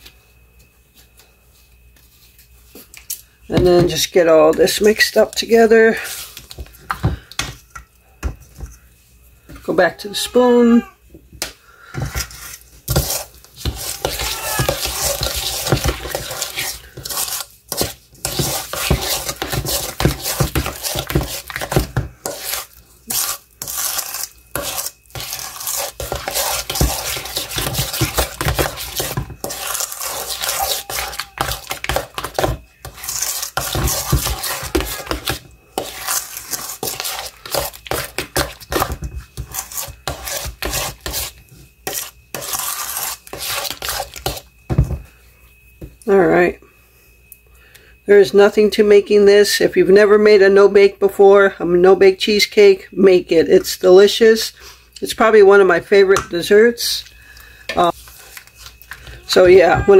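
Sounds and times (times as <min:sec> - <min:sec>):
metal spoon scraping metal bowl: 0:12.2 - 0:44.4.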